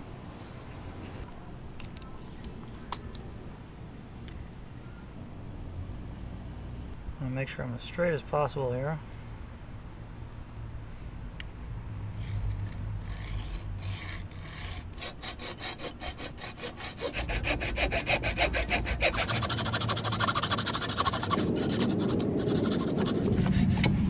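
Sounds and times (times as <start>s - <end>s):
hacksaw cutting metal tube: 12.2s - 24.0s.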